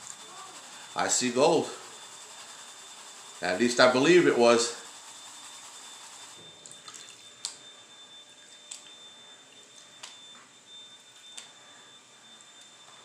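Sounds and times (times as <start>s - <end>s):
faint high-pitched tone: 0.0s - 13.0s
water moving and dripping: 6.6s - 7.3s.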